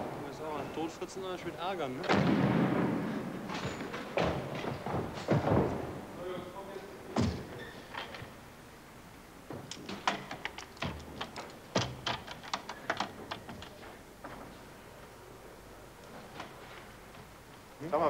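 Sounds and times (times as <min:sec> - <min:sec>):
heavy thuds: 0:02.0 - 0:06.2.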